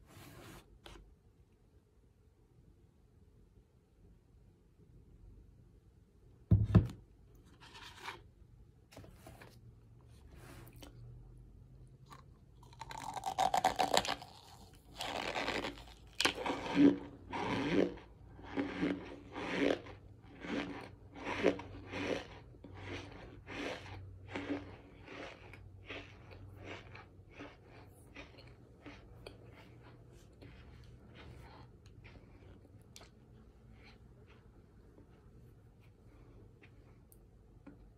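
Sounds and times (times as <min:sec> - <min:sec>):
crunchy chewing: 0:12.0 - 0:35.1.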